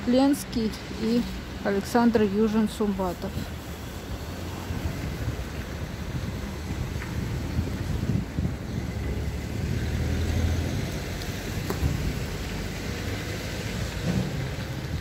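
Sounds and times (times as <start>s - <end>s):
distant traffic rumble: 0.0s - 15.0s
wind: 0.0s - 15.0s.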